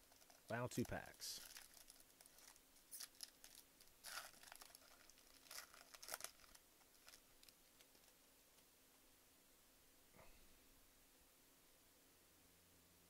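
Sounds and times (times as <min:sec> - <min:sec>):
card pack wrapper crinkling and tearing: 0:00.0 - 0:08.2.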